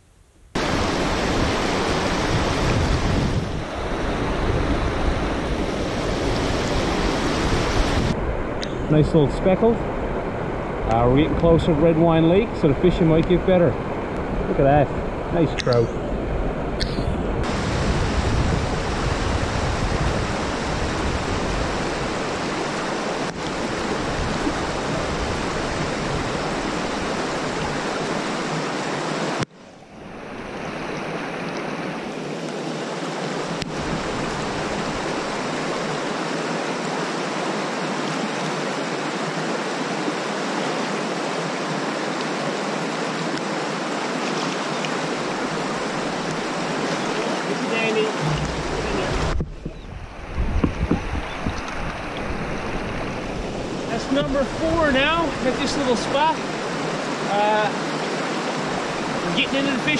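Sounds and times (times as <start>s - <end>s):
river rapids rushing over rocks: 0.6s - 8.1s, 30.0s - 49.4s, 51.9s - 59.9s.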